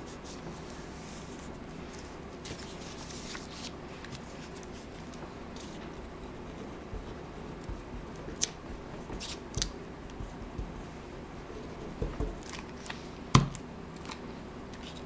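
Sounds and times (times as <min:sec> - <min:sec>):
paper rustling and crackling: 0:00.2 - 0:09.8.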